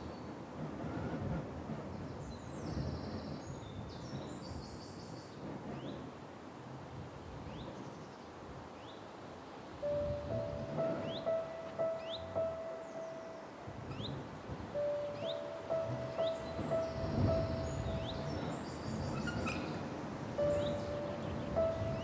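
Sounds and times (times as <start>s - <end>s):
held musical tone: 9.8s - 13.8s, 14.8s - 18.5s, 20.4s - 22.0s
steady rushing noise: 9.8s - 22.0s
high bird-like chirps: 9.9s - 14.1s, 14.8s - 19.8s, 20.4s - 22.0s.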